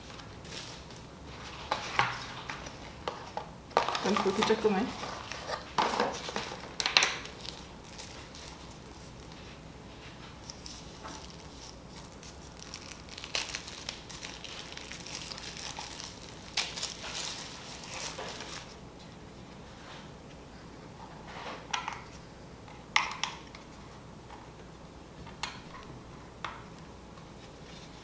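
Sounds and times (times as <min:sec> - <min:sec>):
packaging rustling: 0:00.0 - 0:09.5, 0:10.4 - 0:18.8
wrapper crinkling: 0:03.8 - 0:09.4, 0:10.4 - 0:18.8.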